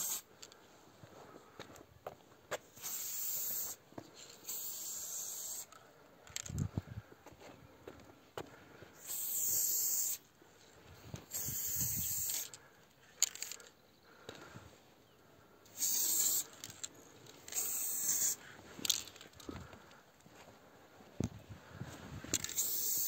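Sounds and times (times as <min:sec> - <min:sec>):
spray paint can hissing: 0:00.0 - 0:00.3, 0:02.7 - 0:03.8, 0:04.4 - 0:05.7, 0:09.0 - 0:10.2, 0:11.3 - 0:12.5, 0:15.7 - 0:16.7, 0:17.4 - 0:18.4, 0:22.4 - 0:23.0.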